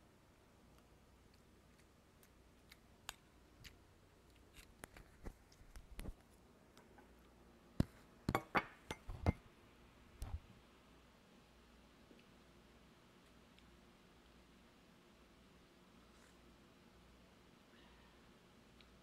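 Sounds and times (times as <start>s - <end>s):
tableware clicks and knocks: 8.3s - 9.4s.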